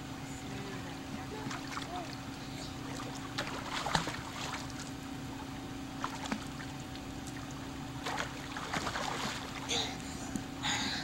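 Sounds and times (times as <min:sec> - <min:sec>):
steady low hum: 0:00.0 - 0:11.0
pool water splashing: 0:01.3 - 0:09.8.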